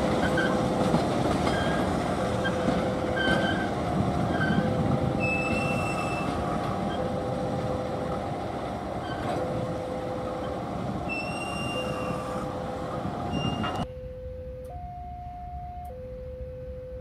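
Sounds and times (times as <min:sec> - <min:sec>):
diesel locomotive engine running: 0:00.0 - 0:13.9
high wheel squeals: 0:01.5 - 0:07.1, 0:09.0 - 0:09.4, 0:10.4 - 0:12.6, 0:13.2 - 0:13.8.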